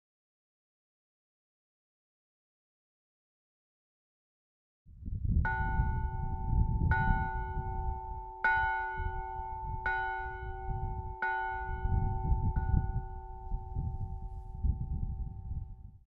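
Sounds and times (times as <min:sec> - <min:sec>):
church bell tolling: 0:05.5 - 0:15.6.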